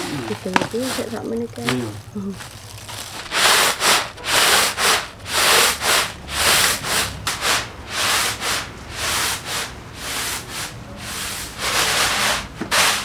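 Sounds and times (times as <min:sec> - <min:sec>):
granules swishing on bamboo tray: 0:00.0 - 0:01.9, 0:03.2 - 0:13.0.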